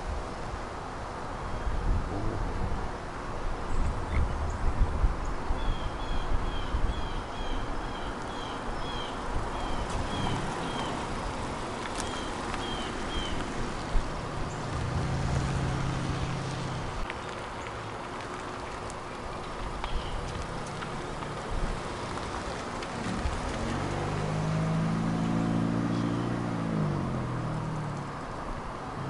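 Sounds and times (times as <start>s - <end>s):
car driving past: 9.6s - 17.1s, 20.3s - 29.0s
bird chirping: 25.8s - 26.5s.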